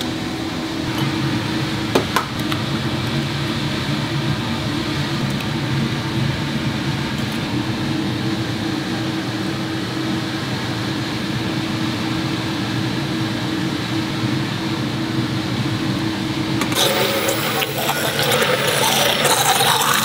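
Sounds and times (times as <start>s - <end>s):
motor humming: 16.5s - 20.0s.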